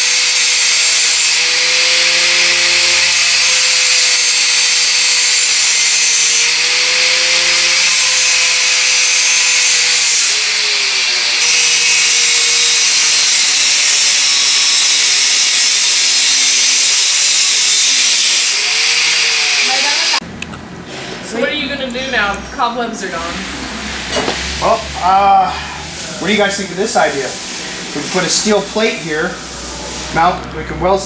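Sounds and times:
angle grinder cutting metal: 0:00.0 - 0:20.2, 0:26.0 - 0:30.3.

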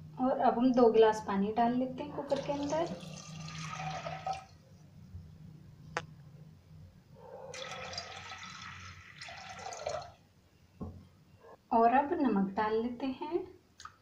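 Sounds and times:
water splashing into a metal pot: 0:02.3 - 0:04.6, 0:07.6 - 0:10.2.

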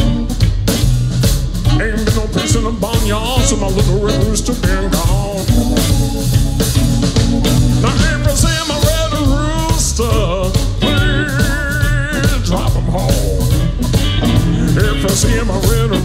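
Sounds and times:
drums: 0:00.0 - 0:16.0
electric bass: 0:00.0 - 0:16.0
lead line of bent notes: 0:01.7 - 0:09.6, 0:13.4 - 0:16.0.

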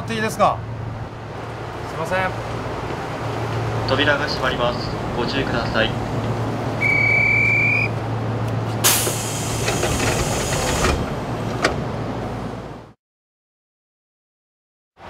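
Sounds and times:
low train hum: 0:00.0 - 0:13.0
train door warning tone: 0:06.8 - 0:08.0
compressed air hiss: 0:08.8 - 0:10.9
sliding doors knocking shut: 0:08.9 - 0:11.9.

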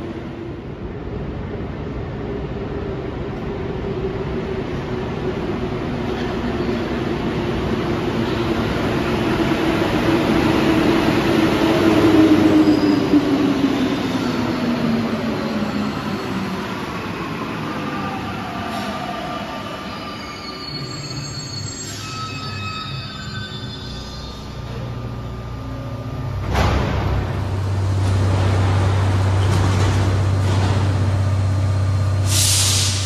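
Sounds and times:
train braking whine: 0:18.2 - 0:26.4
train standing hum: 0:24.3 - 0:33.0.

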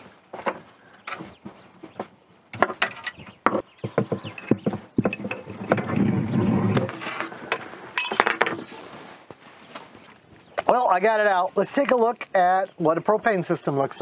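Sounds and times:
rough metal scraping: 0:04.2 - 0:09.0.

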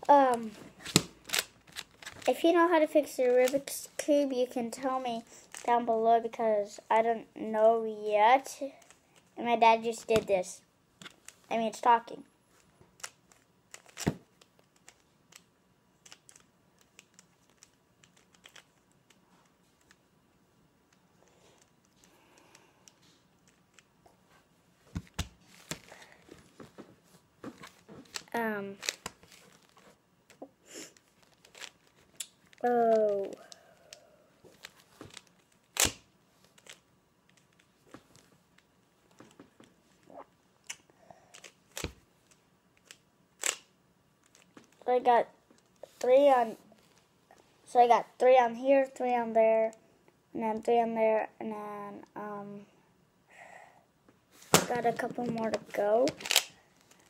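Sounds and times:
puzzle cube clicking as twisted: 0:13.0 - 0:19.2, 0:34.6 - 0:36.0, 0:42.8 - 0:44.5.

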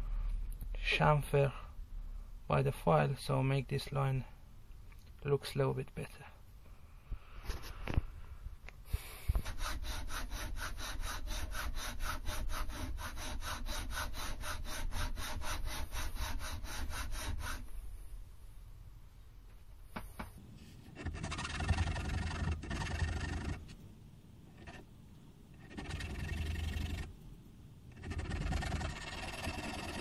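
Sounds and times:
hand file rasping on steel: 0:09.2 - 0:17.7, 0:28.0 - 0:30.0.

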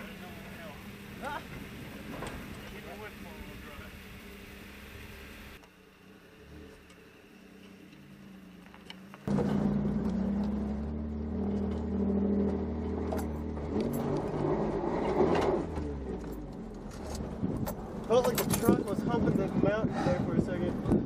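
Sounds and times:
truck knocks and rattles: 0:01.5 - 0:02.8.

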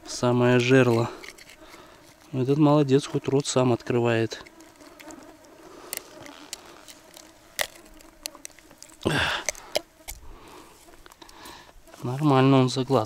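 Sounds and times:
pliers clicking and scraping: 0:00.7 - 0:02.2.

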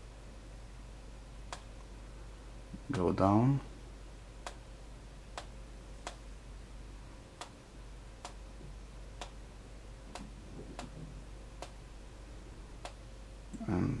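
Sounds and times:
computer mouse clicking: 0:05.3 - 0:06.2, 0:10.1 - 0:11.0.

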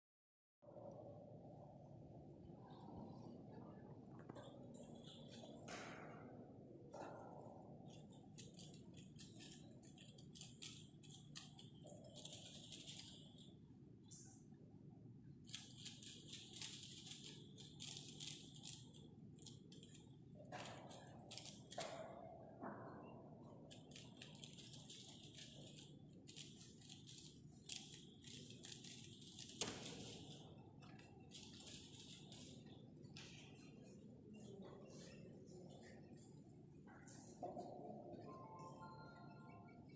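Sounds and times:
puzzle cube layers clicking: 0:23.7 - 0:30.4.

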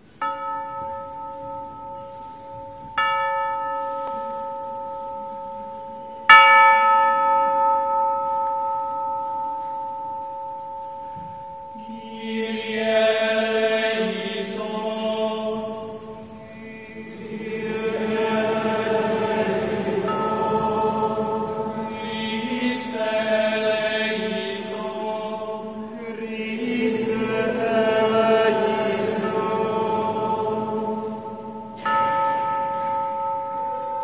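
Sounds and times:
chanted singing: 0:10.0 - 0:34.0
bell ringing: 0:15.8 - 0:23.5.

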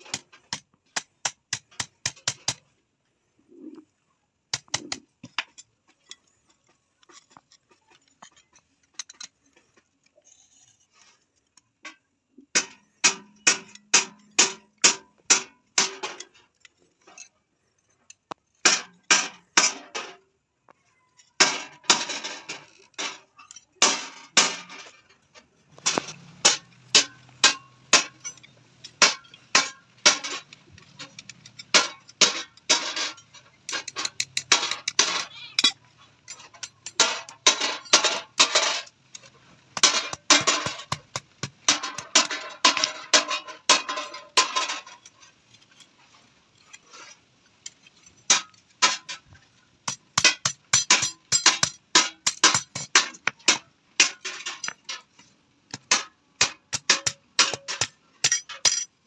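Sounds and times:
hammer striking iron on anvil: 0:25.9 - 0:28.4, 0:29.0 - 0:30.4, 0:49.9 - 0:54.8, 0:55.7 - 0:58.9.

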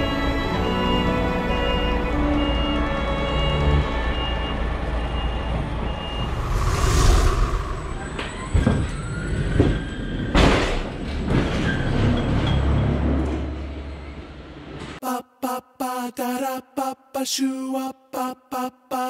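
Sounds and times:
reversing beeper: 0:03.2 - 0:10.2.

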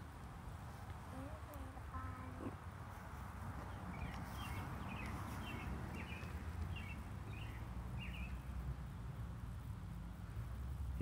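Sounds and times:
low outdoor rumble: 0:00.0 - 0:11.0
bird chirping: 0:03.6 - 0:08.6.

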